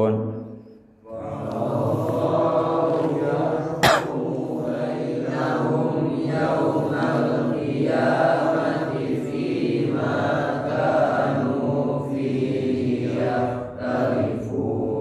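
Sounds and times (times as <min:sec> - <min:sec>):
man chanting recitation: 0:00.0 - 0:15.0.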